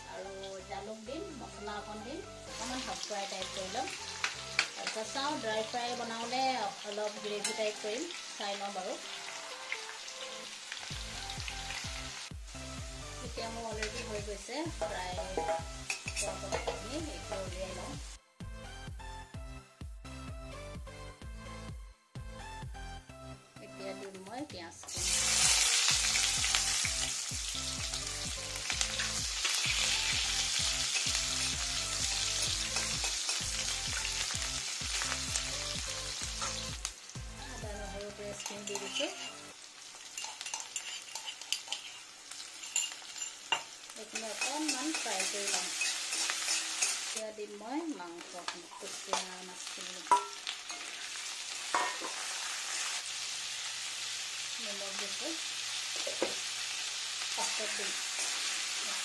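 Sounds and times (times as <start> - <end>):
onions sizzling in hot oil: 0.0 - 18.2, 24.8 - 59.0
spatula clinking against pan: 15.4 - 16.8, 38.4 - 39.4, 40.2 - 42.0, 42.6 - 47.2, 50.1 - 50.9.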